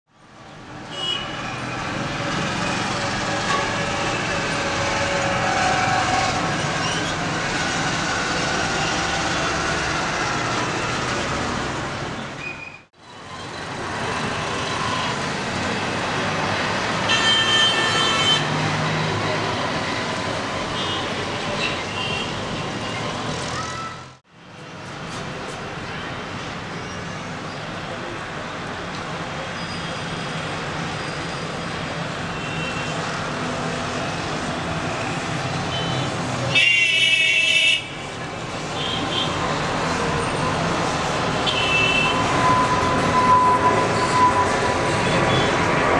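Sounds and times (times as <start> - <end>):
distant road traffic: 0.1 - 45.9
distant jet engine roar: 39.4 - 45.9.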